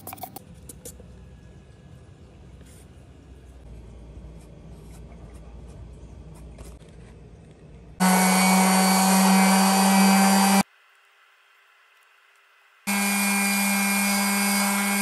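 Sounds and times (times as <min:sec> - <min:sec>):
electric sander running: 0:08.0 - 0:10.6, 0:12.9 - 0:15.0.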